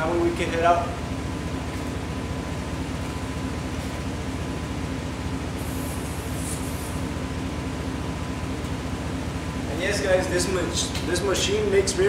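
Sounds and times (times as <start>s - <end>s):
air compressor pulsing: 0.0s - 12.0s
short high air hiss: 5.6s - 7.1s.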